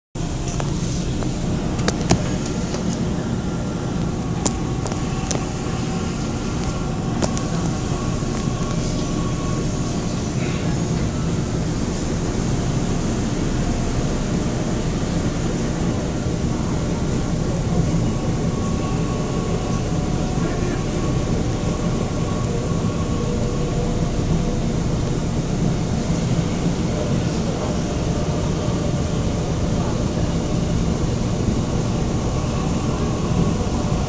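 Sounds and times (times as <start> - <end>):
train wheels rumbling on rail: 0.2 - 34.0.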